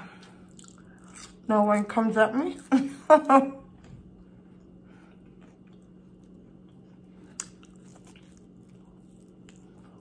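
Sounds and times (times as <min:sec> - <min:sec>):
low steady hum: 0:00.0 - 0:10.0
chewing rib close-up: 0:05.2 - 0:10.0.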